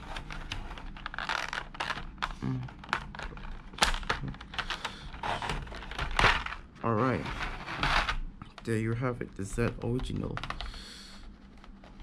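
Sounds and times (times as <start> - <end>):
plastic blister tray crinkling: 0.0 - 6.8.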